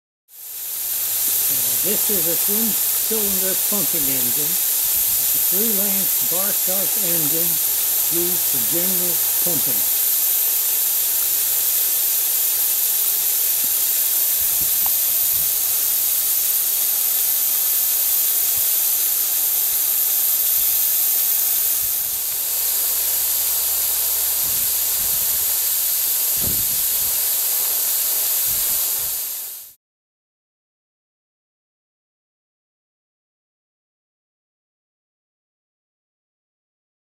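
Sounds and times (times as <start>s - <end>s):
model engine exhaust hissing: 0.4s - 29.7s.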